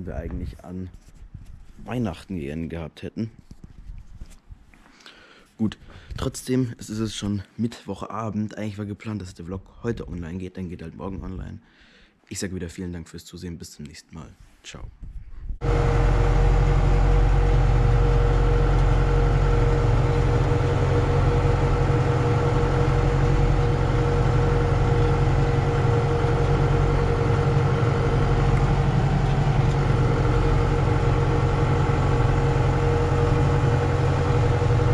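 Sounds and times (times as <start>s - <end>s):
steady whine: 15.6s - 34.9s
tractor engine running: 15.6s - 34.9s.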